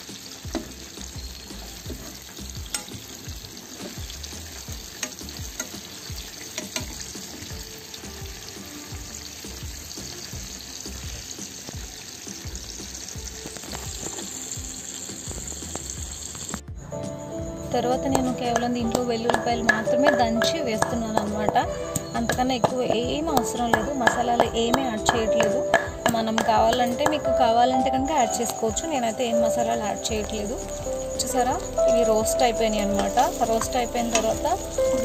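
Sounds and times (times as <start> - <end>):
fish sizzling in oil: 0.0 - 16.7, 17.7 - 35.0
spoon clicking against pan: 2.7 - 2.9, 4.9 - 5.9, 6.6 - 7.0.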